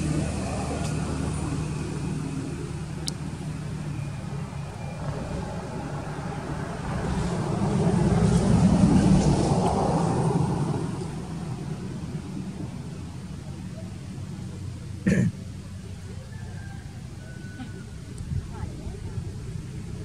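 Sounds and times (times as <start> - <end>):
motor vehicle passing by: 0.0 - 20.0.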